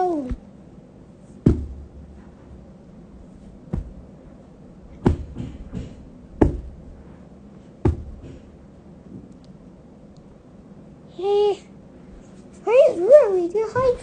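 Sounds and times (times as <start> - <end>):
heavy footstep thuds: 1.3 - 2.4, 3.2 - 7.1, 7.7 - 9.3.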